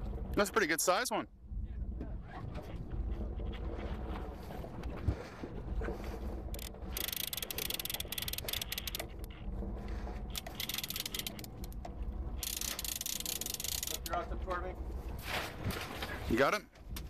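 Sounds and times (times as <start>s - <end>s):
low rumble: 0.0s - 16.2s
fishing reel clicking: 6.5s - 9.4s, 10.3s - 11.8s, 12.4s - 14.2s.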